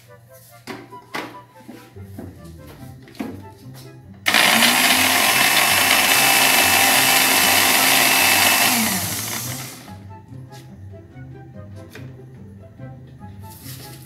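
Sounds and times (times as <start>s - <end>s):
blender motor running: 4.3s - 9.9s
blender switch: 4.3s - 9.9s
blender winding down hum: 4.3s - 9.9s.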